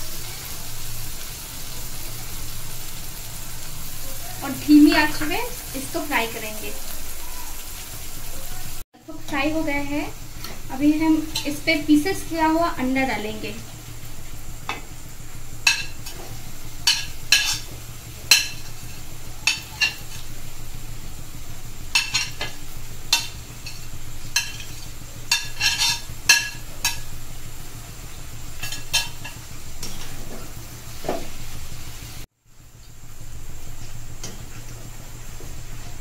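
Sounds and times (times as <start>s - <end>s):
faint sizzle: 0.0s - 36.0s
steel spoon clinking on metal: 18.3s - 20.4s, 22.0s - 27.1s, 28.6s - 30.2s.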